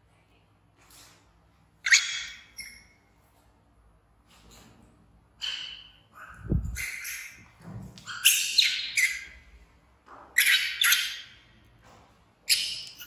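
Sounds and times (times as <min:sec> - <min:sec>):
baby monkey screaming: 0:01.8 - 0:02.9, 0:05.4 - 0:07.5, 0:08.1 - 0:09.4.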